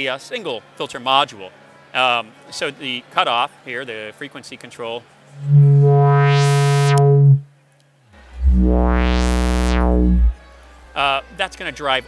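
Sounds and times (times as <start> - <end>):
synthesizer filter sweep: 5.4 - 7.5, 8.2 - 10.4.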